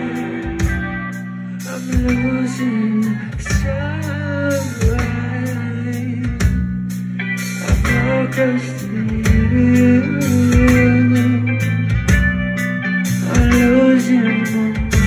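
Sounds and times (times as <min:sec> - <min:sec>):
drum hits: 0:00.0 - 0:01.2
bass line: 0:00.0 - 0:15.0
electric guitar melody: 0:00.0 - 0:15.0.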